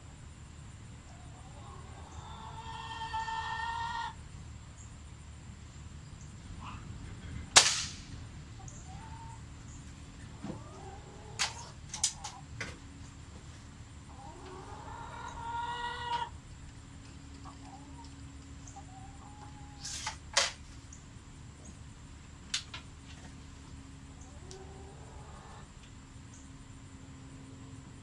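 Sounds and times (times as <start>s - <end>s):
chicken clucking: 1.0s - 4.2s, 8.5s - 21.0s, 23.2s - 26.4s.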